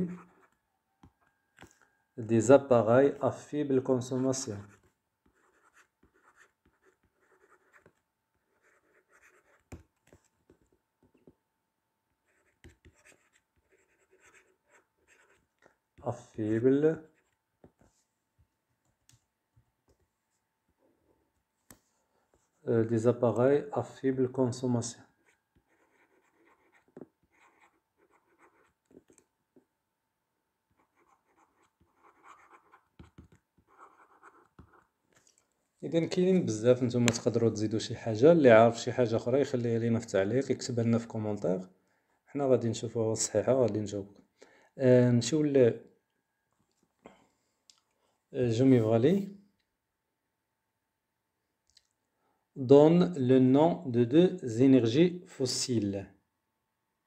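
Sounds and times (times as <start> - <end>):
stylus scratching on tablet: 0.0 - 0.6, 4.0 - 10.6, 12.2 - 15.6, 25.2 - 29.2, 30.7 - 35.0.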